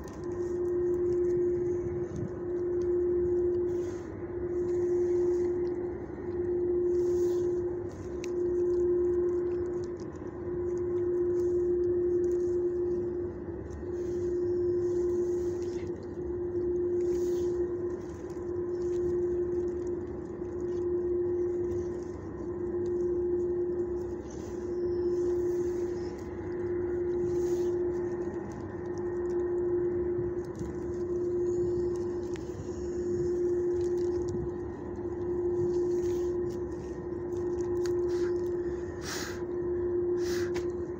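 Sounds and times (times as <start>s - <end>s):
steady machine hum: 0.0s - 40.9s.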